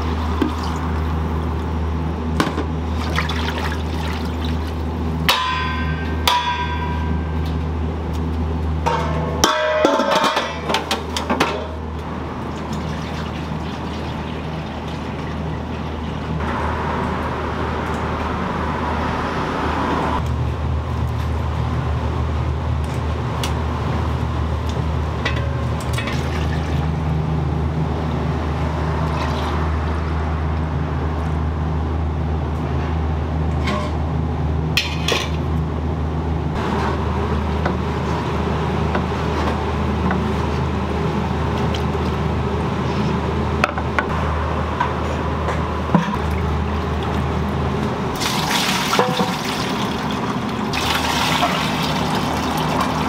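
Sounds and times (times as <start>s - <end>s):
liquid running into a container: 3.0s - 4.8s, 12.4s - 15.5s, 48.2s - 53.0s.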